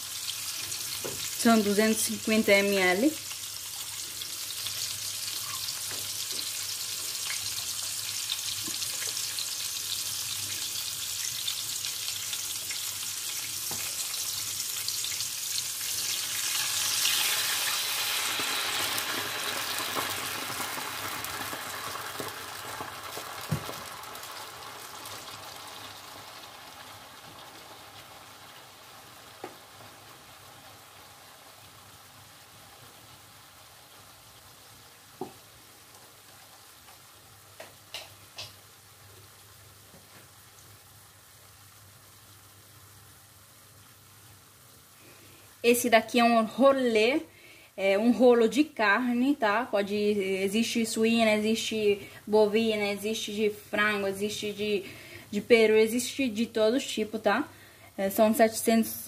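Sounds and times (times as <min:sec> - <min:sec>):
wine hissing in a hot pan: 0:00.0 - 0:37.3
meat sizzling in a pot: 0:00.0 - 0:59.0.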